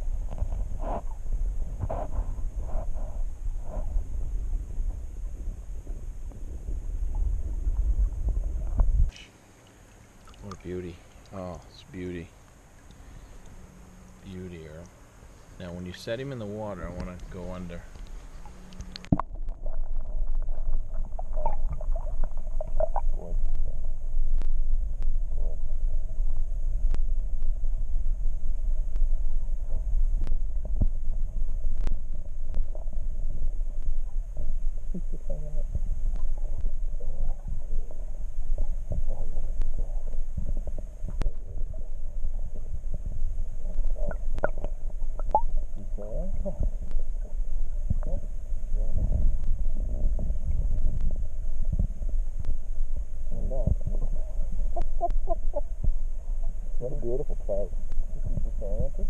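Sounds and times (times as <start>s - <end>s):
underwater stream rumble: 0.0s - 59.0s
faint clicks and knocks: 16.9s - 25.2s, 35.6s - 48.2s.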